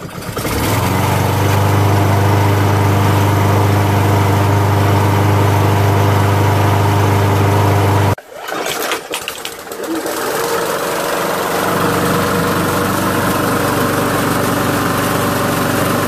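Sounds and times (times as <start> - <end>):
lawn mower engine running: 0.0 - 16.0.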